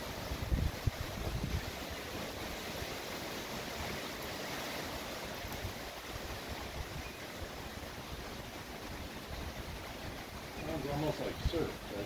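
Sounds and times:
wind buffeting microphone: 0:00.0 - 0:02.6
wind rushing through palm fronds: 0:00.0 - 0:12.0.

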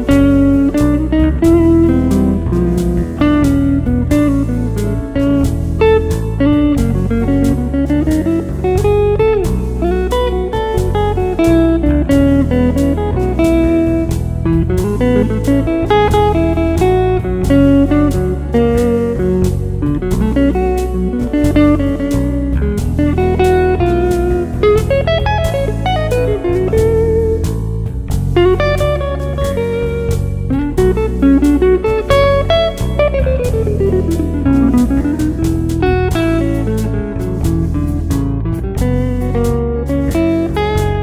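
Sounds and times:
blues guitar with bending notes: 0:00.0 - 0:41.0
steady beat: 0:00.0 - 0:41.0.

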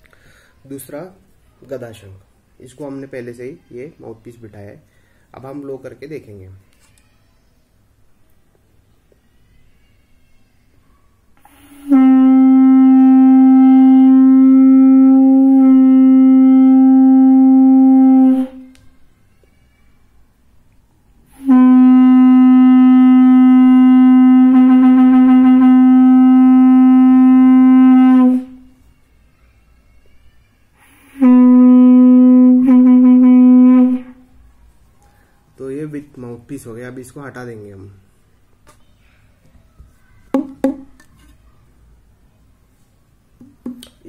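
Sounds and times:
conch shell blasts: 0:11.4 - 0:18.7, 0:21.3 - 0:28.7, 0:30.8 - 0:34.2.

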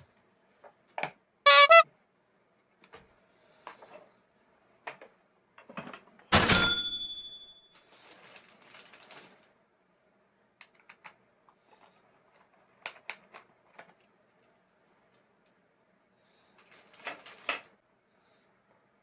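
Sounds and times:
ringing metallic clink: 0:06.4 - 0:07.7.

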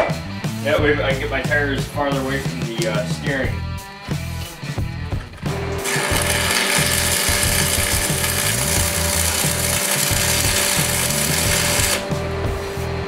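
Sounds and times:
arc welder crackling: 0:02.3 - 0:03.4, 0:04.4 - 0:12.4.

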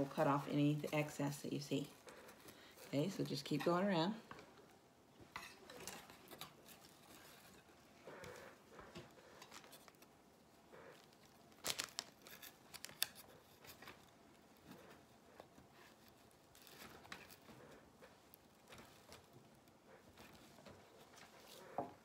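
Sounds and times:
plastic mesh crinkling: 0:10.9 - 0:17.6.

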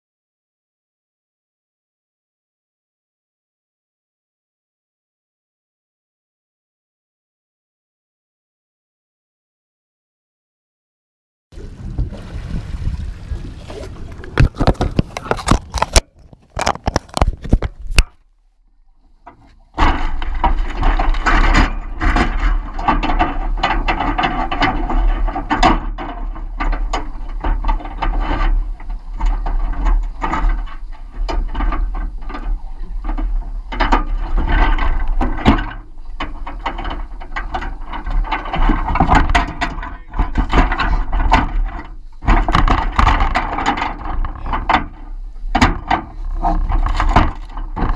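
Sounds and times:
muffled mechanical rattling: 0:14.0 - 0:18.2, 0:18.8 - 0:47.9
camera housing clicks and knocks: 0:14.4 - 0:18.1.

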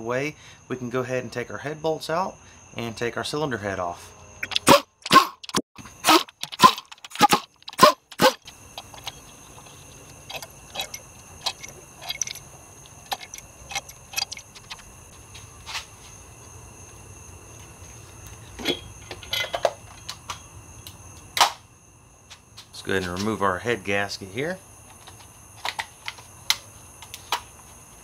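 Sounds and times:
impact wrench bursts: 0:04.4 - 0:09.2
metal bolts clattering: 0:04.4 - 0:14.8
metallic clinks and rattles: 0:04.4 - 0:14.8.

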